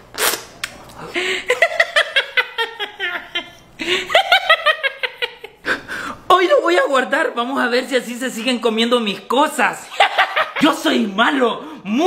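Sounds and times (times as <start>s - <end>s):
man laughing hard: 1.1s - 5.9s.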